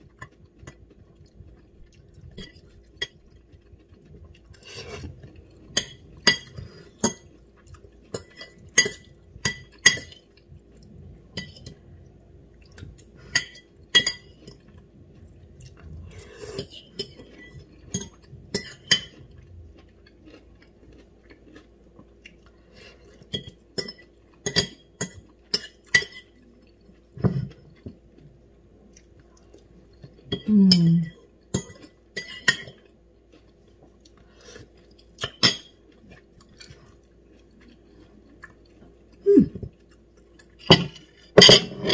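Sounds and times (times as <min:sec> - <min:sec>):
soft chewing: 0:00.0 - 0:41.4.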